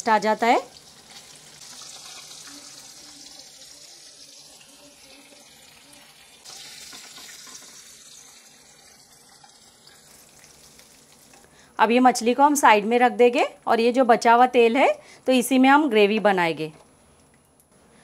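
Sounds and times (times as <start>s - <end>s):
hot oil sizzling around fish: 0.0s - 11.6s.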